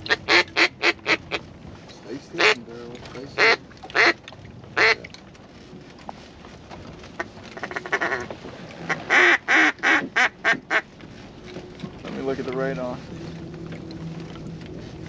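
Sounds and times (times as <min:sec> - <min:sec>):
duck call quacks: 0:00.1 - 0:01.4, 0:03.4 - 0:04.2, 0:04.8 - 0:05.0, 0:07.6 - 0:08.3, 0:08.9 - 0:10.8.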